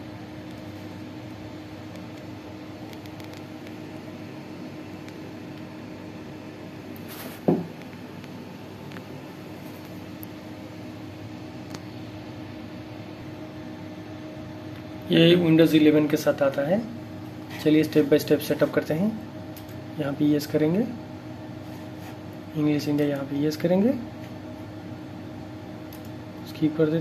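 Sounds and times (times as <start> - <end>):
fan hum: 0.0 - 27.0.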